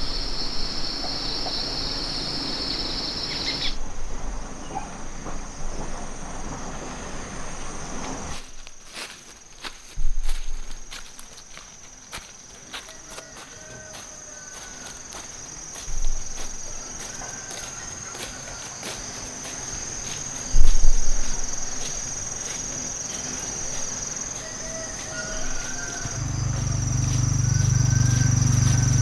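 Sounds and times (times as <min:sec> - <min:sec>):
insects droning: 0:00.0 - 0:29.0
footsteps on grass: 0:08.3 - 0:29.0
low hum: 0:26.0 - 0:29.0.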